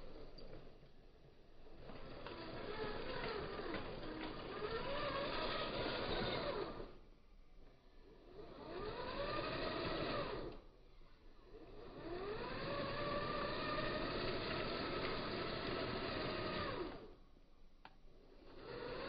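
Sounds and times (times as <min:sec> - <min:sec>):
electric motors whining: 0:01.6 - 0:07.1, 0:08.0 - 0:10.7, 0:11.4 - 0:17.2, 0:18.2 - 0:19.0.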